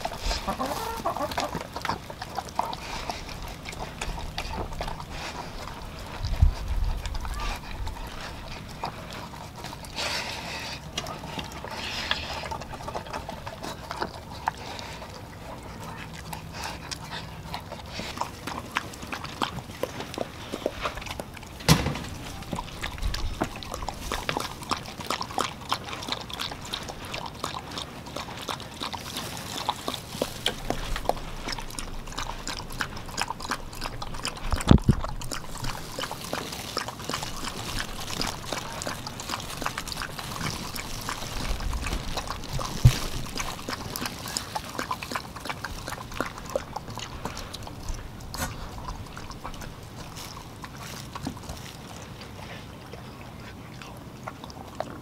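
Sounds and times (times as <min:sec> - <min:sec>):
dogs lapping and chewing food: 0:00.0 - 0:55.0
loud thump: 0:21.7 - 0:22.2.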